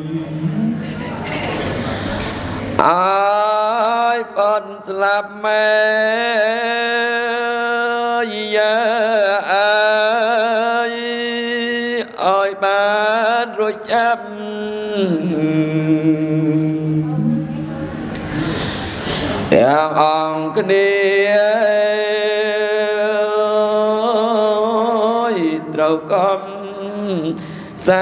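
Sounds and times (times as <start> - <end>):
man chanting into microphone: 0.0 - 0.8, 2.8 - 17.6, 19.5 - 28.0
quick breaths: 18.3 - 19.5, 27.4 - 27.8.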